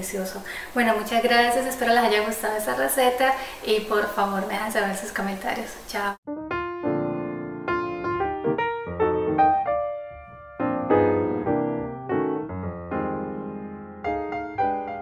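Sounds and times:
gentle piano music: 0:06.3 - 0:15.0.

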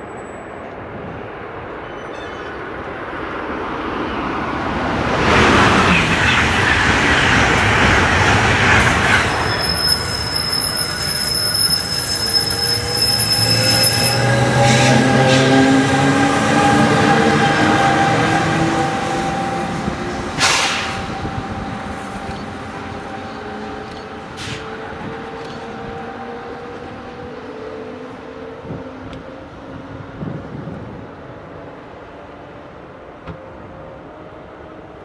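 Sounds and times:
high-pitched wheel squeal: 0:08.8 - 0:15.6.

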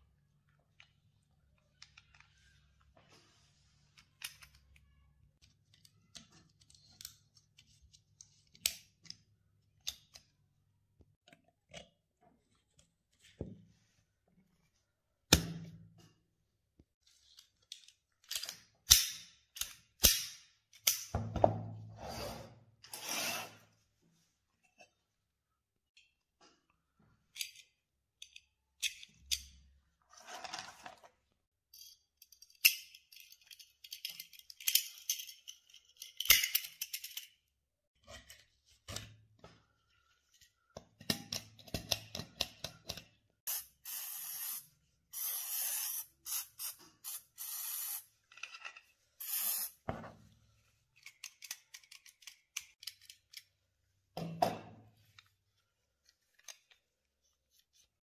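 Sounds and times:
metal parts clicking and scraping: 0:31.7 - 0:37.4, 0:51.0 - 0:53.5
aerosol can spraying: 0:43.5 - 0:48.1, 0:49.2 - 0:49.8.

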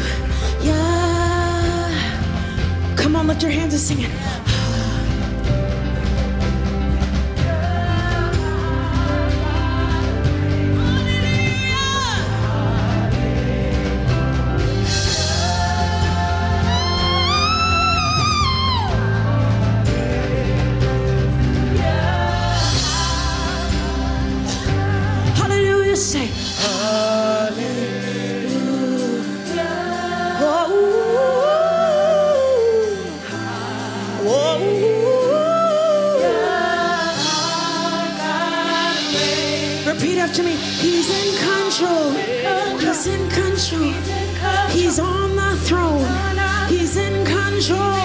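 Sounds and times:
woman singing gospel: 0:00.0 - 0:05.5, 0:07.3 - 0:48.0
band playing: 0:00.0 - 0:48.0
backing singers: 0:07.2 - 0:48.0.

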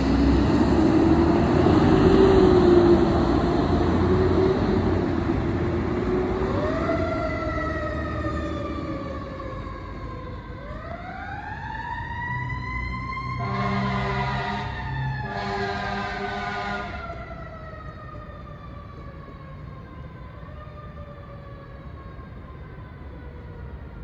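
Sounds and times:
siren wailing: 0:05.9 - 0:24.0.

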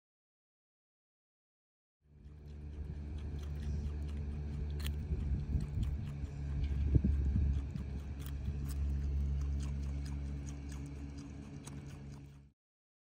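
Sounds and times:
animal chewing carrot crunches: 0:02.1 - 0:12.5
steady low hum: 0:02.1 - 0:12.5.

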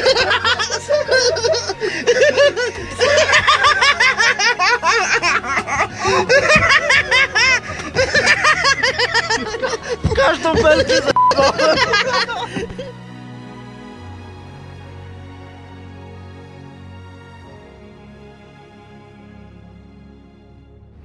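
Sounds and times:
people laughing loudly: 0:00.0 - 0:13.1.

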